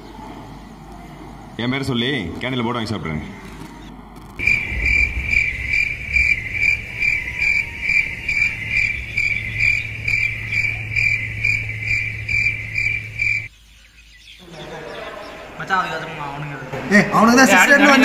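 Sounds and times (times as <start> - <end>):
cricket chirping: 4.3 - 14.5
low hum: 4.4 - 13.5.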